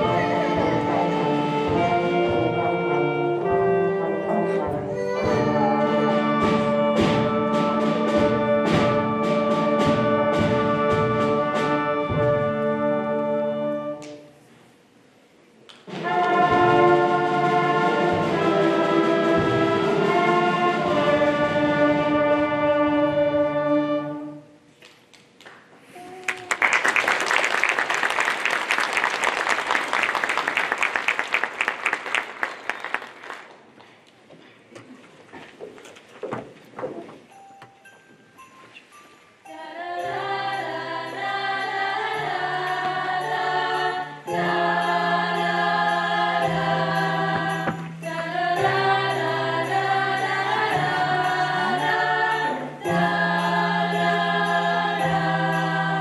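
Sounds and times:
steady drum strokes: 0.0 - 13.1, 15.9 - 23.7
concert band playing: 0.0 - 14.0, 15.9 - 24.4
audience applause: 26.0 - 33.8.

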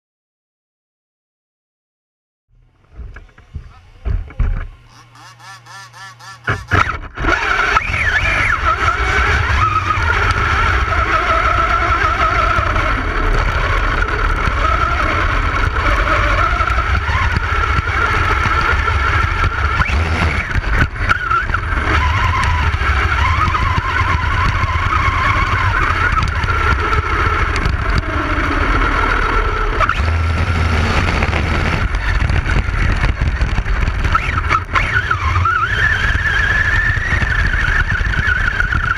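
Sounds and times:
rc car motor running hard: 2.8 - 38.9
wind rumble: 30.4 - 34.8.

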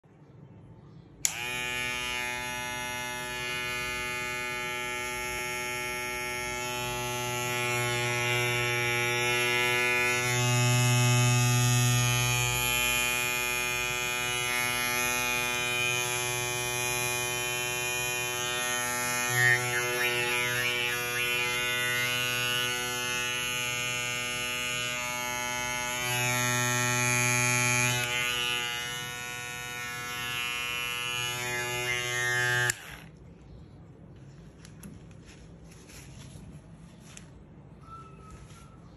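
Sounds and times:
electric hair clipper buzzing: 1.2 - 33.2.

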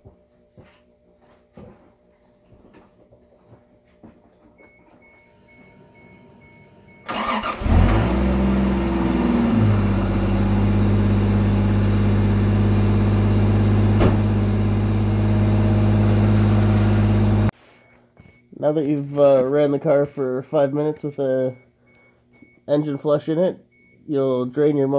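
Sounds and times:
starter cranking engine: 7.1 - 8.3
car engine idling: 7.1 - 17.5.

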